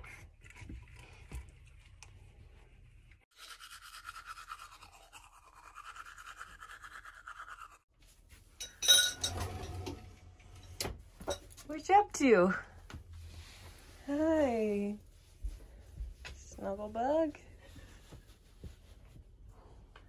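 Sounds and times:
toothbrush scrubbing teeth: 3.3 - 7.8.

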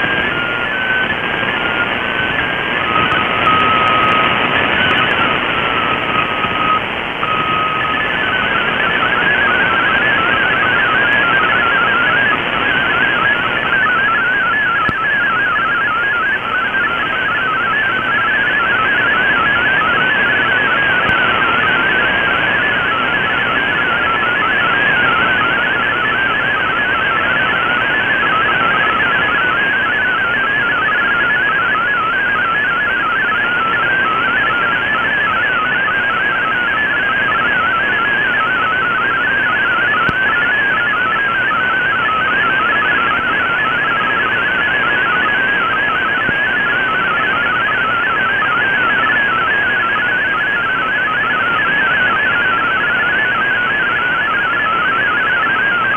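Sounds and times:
radio band hiss: 0.0 - 31.6
warbling digital data tones: 0.0 - 55.9.

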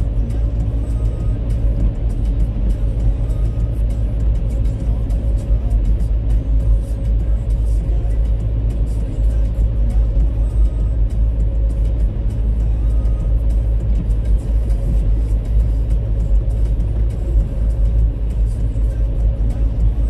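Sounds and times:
car driving on asphalt: 0.0 - 20.0.

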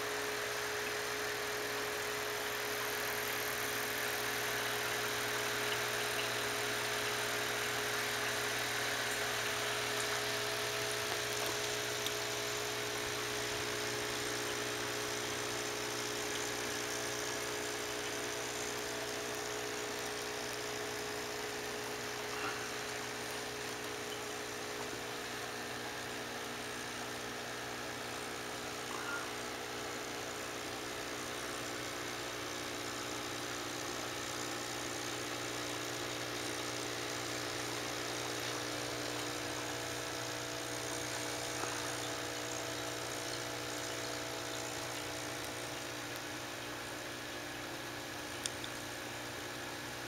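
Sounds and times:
air stones bubbling: 40.7 - 49.1.

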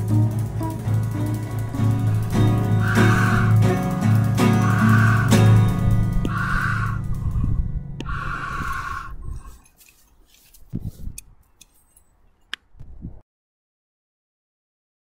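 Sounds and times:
acoustic guitar chord: 0.0 - 8.0
camera handling clicks and rustles: 9.6 - 12.7.

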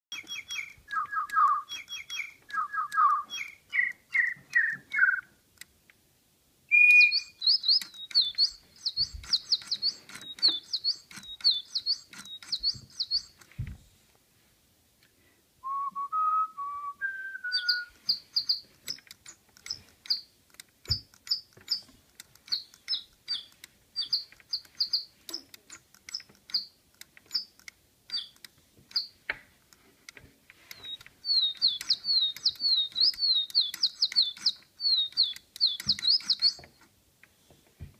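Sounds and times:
toy bird electronic birdsong: 0.1 - 5.2, 6.7 - 13.4, 17.5 - 20.3, 22.5 - 25.4, 28.1 - 29.2, 30.7 - 36.7.

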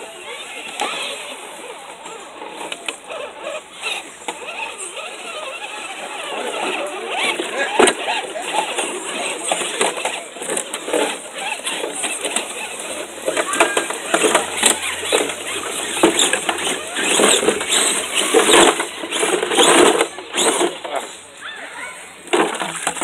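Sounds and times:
people talking: 0.0 - 23.0
rc crawlers driving through mud: 0.0 - 23.0
knocks and clatter on rocks: 22.3 - 23.0.

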